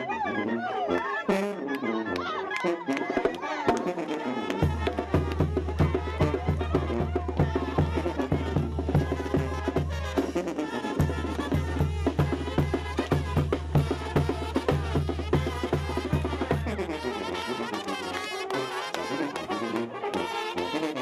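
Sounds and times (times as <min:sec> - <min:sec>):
quick drum beat: 0:04.6 - 0:10.4, 0:11.0 - 0:17.0.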